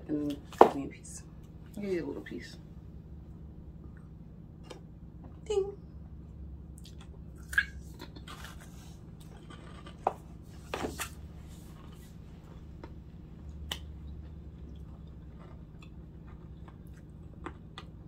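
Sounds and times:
chewing chocolate bar: 0:06.8 - 0:10.0, 0:12.7 - 0:18.0.

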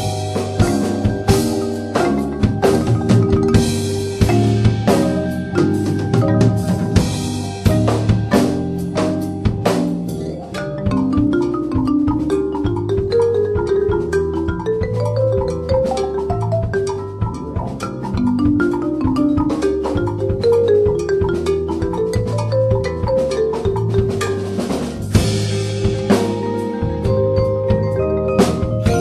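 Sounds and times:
drums and percussion: 0:00.0 - 0:29.0
quick short melodic notes: 0:25.7 - 0:29.0.

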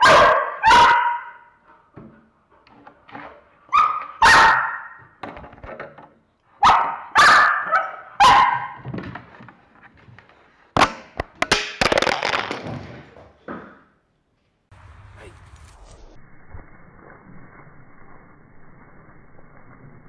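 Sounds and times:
dog barking loudly: 0:00.0 - 0:01.5, 0:03.7 - 0:05.0, 0:06.6 - 0:08.8.

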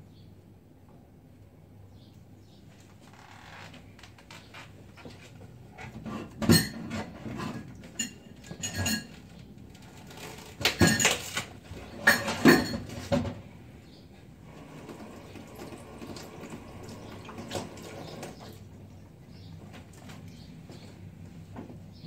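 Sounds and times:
dishes clattering and clinking: 0:05.9 - 0:09.4, 0:10.4 - 0:13.4.

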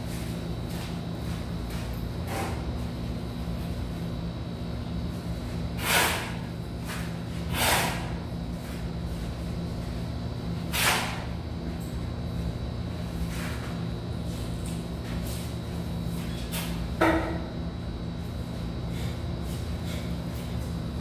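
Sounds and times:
shovel scraping into mortar: 0:05.8 - 0:08.2, 0:10.7 - 0:11.3.

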